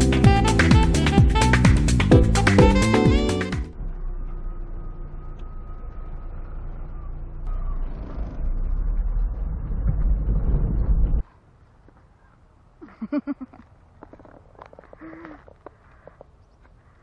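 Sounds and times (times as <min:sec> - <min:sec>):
electronic intro music: 0:00.1 - 0:04.8
van engine and tyre rumble: 0:03.2 - 0:12.0, 0:13.4 - 0:17.0.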